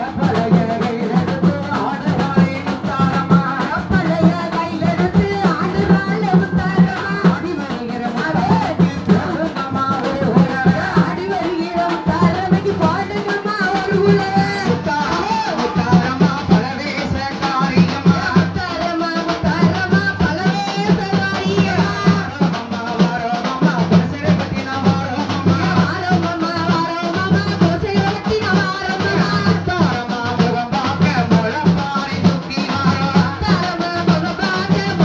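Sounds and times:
percussion: 0.0s - 35.0s
person singing folk song: 0.0s - 35.0s.

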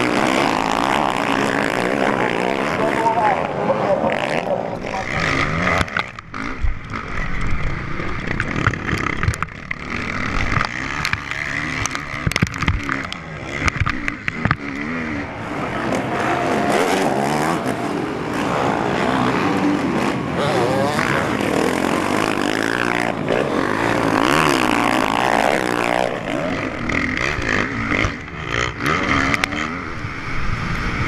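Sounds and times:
motorcycle engines revving: 0.0s - 31.0s
sharp knocks and clatters: 8.3s - 14.8s.

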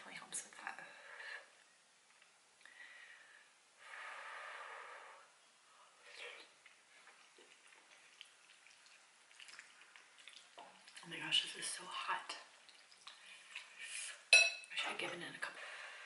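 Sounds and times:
soft chewing: 5.4s - 11.1s, 12.4s - 13.9s.

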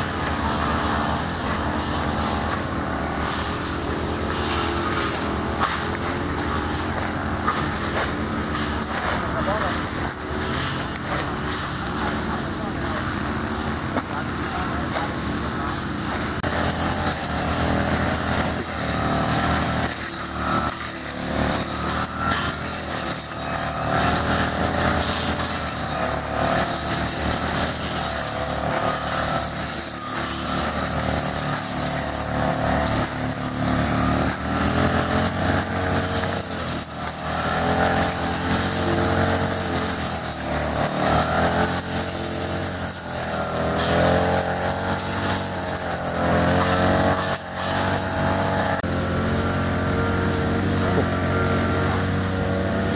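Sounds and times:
brush cutter engine running: 0.0s - 52.9s.

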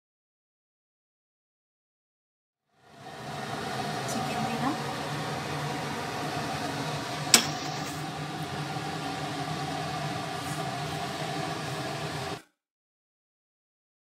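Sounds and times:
mechanical hum: 2.7s - 12.5s.

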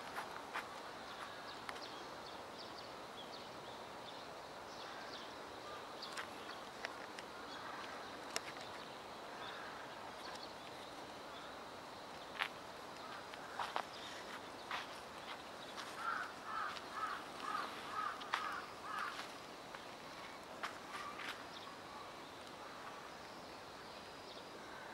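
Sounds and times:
faint steady hiss: 0.0s - 24.9s.

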